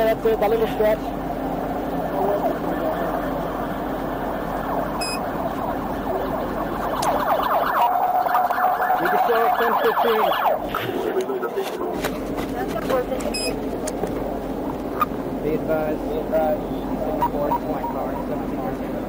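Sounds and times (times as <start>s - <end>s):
emergency siren rising sweeps: 0.4s - 12.1s, 16.5s - 19.0s.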